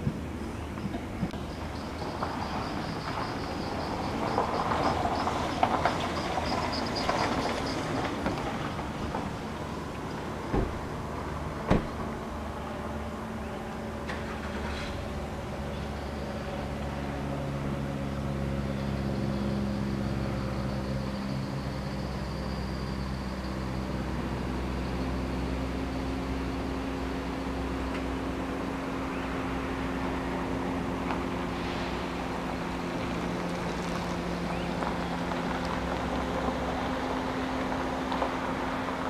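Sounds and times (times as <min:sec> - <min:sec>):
train motor hum: 0:08.0 - 0:21.4.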